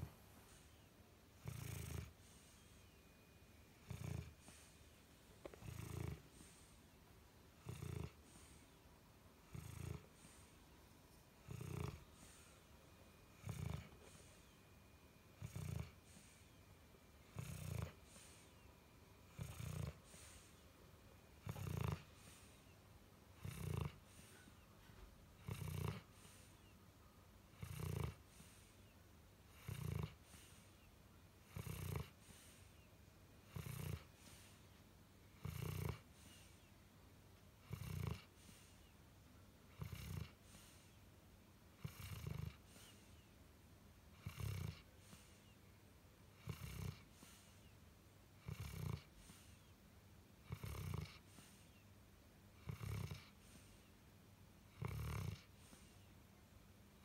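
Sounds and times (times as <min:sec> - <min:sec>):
dog snoring: 0:00.0 - 0:06.9, 0:07.5 - 0:08.8, 0:09.4 - 0:10.7, 0:11.3 - 0:20.7, 0:21.3 - 0:26.8, 0:27.5 - 0:28.9, 0:29.5 - 0:34.8, 0:35.4 - 0:36.7, 0:37.6 - 0:38.9, 0:39.7 - 0:41.0, 0:41.8 - 0:43.3, 0:44.1 - 0:45.6, 0:46.3 - 0:47.7, 0:48.4 - 0:49.7, 0:50.4 - 0:51.8, 0:52.6 - 0:53.9, 0:54.7 - 0:56.1.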